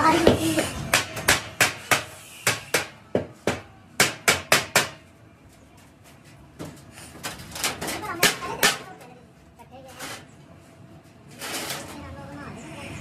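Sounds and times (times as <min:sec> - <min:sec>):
hammer striking metal: 0:00.9 - 0:05.0.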